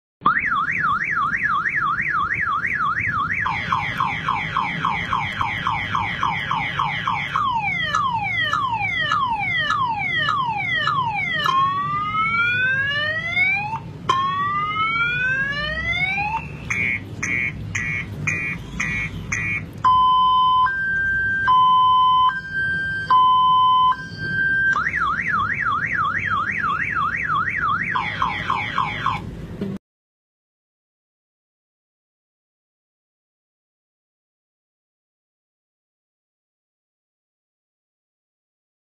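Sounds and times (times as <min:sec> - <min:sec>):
man imitating car alarm: 0:14.1 - 0:20.9.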